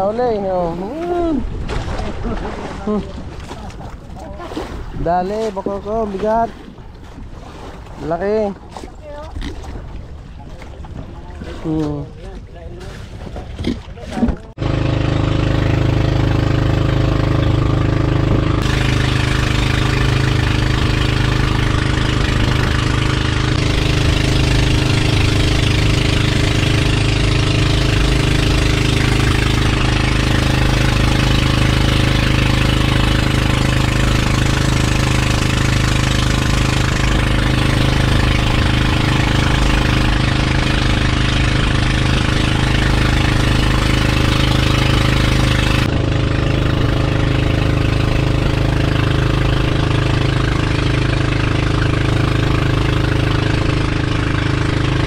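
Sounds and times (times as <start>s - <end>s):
boat engine droning: 0.0s - 55.0s
water hissing along hull: 14.7s - 55.0s.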